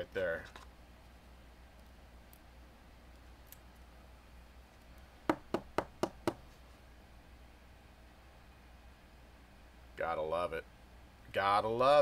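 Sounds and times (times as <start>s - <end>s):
sharp knocks on hard surface: 5.3s - 6.4s.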